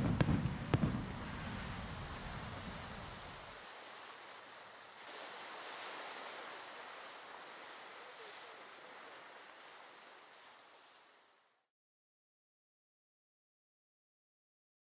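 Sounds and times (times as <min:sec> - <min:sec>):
fireworks sizzling crackle: 0:00.0 - 0:03.6.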